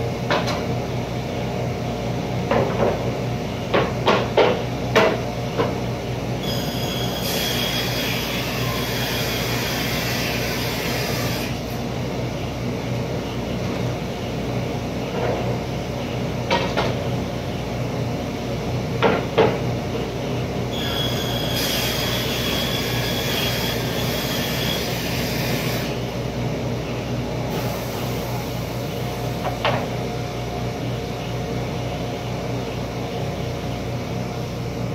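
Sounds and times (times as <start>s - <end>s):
table saw cutting board: 6.4s - 11.7s, 20.7s - 26.0s.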